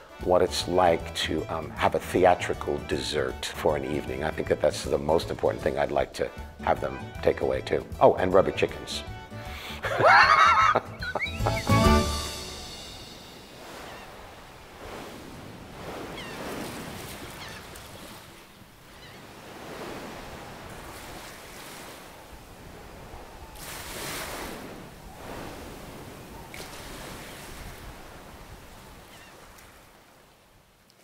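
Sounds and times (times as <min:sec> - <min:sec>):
waves washing on shore: 0:11.8 - 0:30.5.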